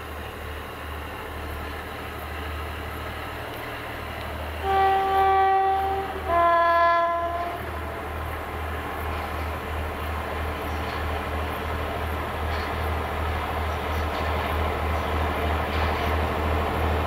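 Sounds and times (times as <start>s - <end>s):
locomotive engine rumble: 0.0s - 17.0s
two-tone locomotive horn: 4.6s - 8.1s.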